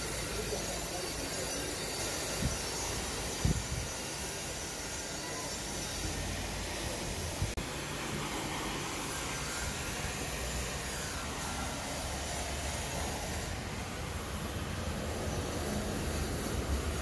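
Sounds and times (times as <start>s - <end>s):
rushing hiss with low rumble: 0.0s - 17.0s.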